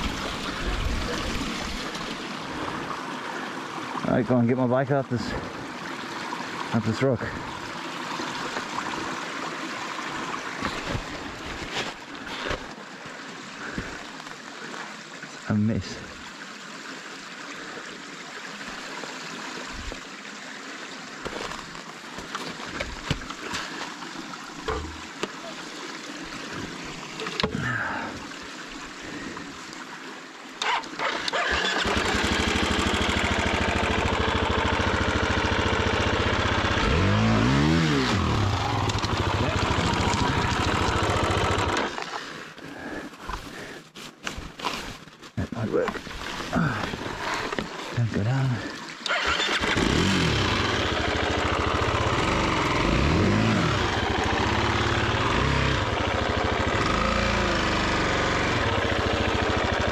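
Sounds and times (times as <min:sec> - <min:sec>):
dirt bike engine revving: 0:30.6 - 0:41.9, 0:49.1 - 0:59.9.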